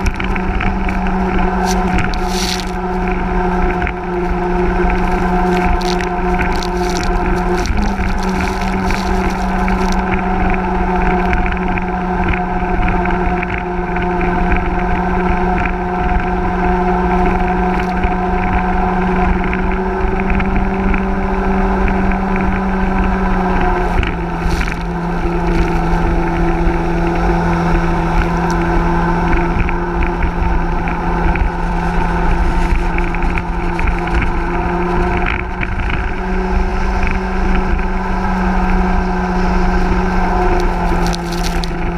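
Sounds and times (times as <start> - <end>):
water and wind rushing: 0.0 - 10.9
boat engine droning: 0.0 - 41.9.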